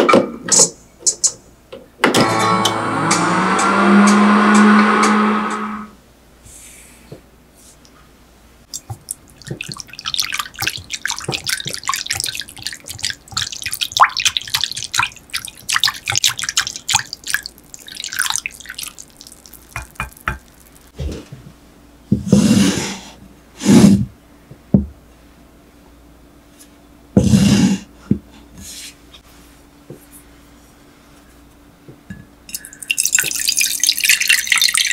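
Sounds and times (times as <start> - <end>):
microwave oven humming: 2.2 - 6.0
whisk scraping glass bowl: 9.4 - 20.9.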